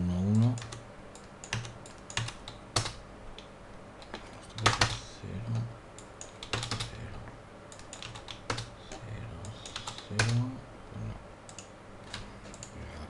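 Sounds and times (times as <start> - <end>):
computer keyboard typing: 0.4 - 3.0, 4.1 - 5.0, 6.2 - 7.0, 7.7 - 8.7, 9.6 - 10.4.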